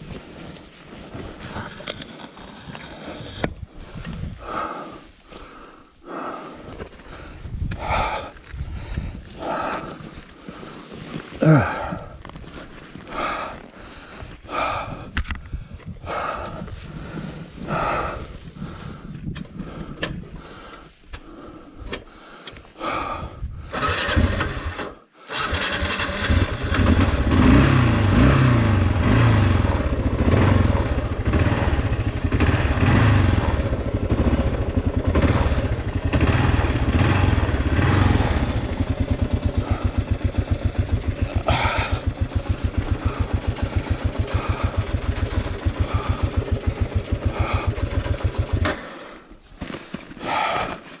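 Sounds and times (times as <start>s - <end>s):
motorcycle engine revving and idling: 23.7s - 49.1s
engine cranking: 23.7s - 50.7s.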